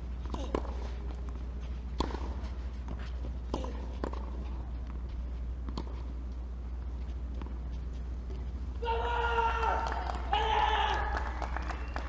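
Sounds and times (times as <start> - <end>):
steady low hum: 0.0 - 12.0
tennis ball hit by racket: 2.0 - 2.4, 5.6 - 6.0.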